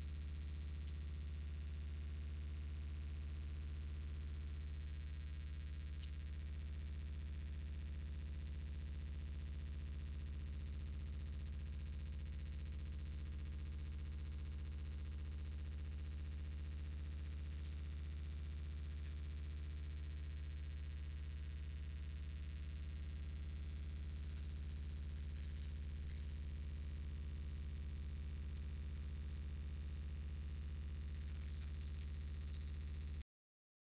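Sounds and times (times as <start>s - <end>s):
faint ticks: 0.0s - 33.2s
low electrical hum: 0.0s - 33.2s.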